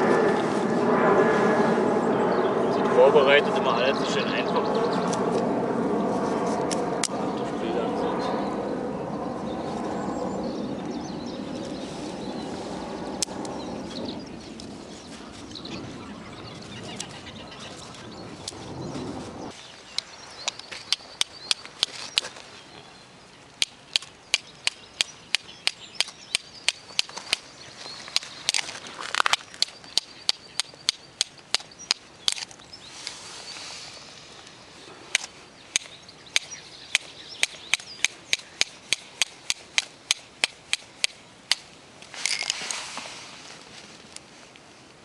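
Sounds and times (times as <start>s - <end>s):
dry twigs rustling: 11.4s - 23.0s, 26.8s - 30.0s, 31.4s - 36.1s, 39.0s - 45.0s.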